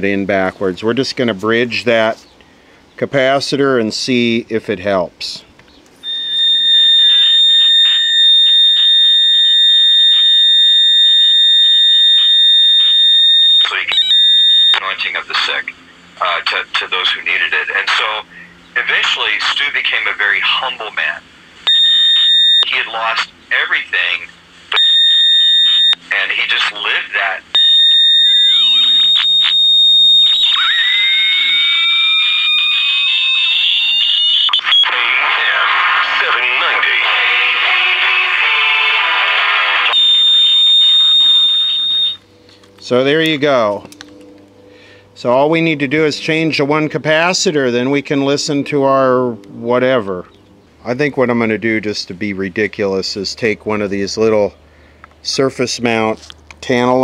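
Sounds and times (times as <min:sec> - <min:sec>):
radio speaker high-pitched whistle: 0:06.0 - 0:15.6, 0:21.7 - 0:42.2
static clicks: 0:07.8 - 0:09.0.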